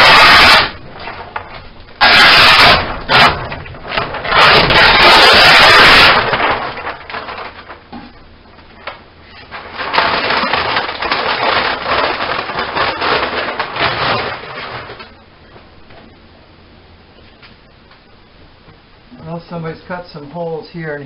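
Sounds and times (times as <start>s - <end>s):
fabric ripping: 0.0s - 1.3s, 2.0s - 7.8s, 9.4s - 15.1s
stiff fabric crackling and crinkling: 0.0s - 15.2s.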